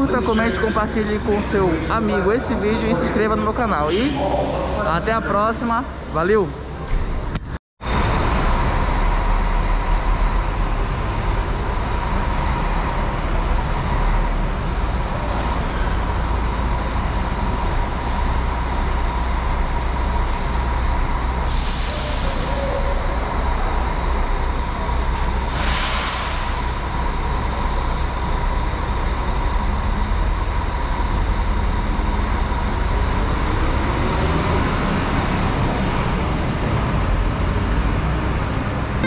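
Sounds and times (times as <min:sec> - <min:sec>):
coach diesel engine running: 0:00.0 - 0:21.4
air brake hisses: 0:21.5 - 0:22.8, 0:25.5 - 0:26.6.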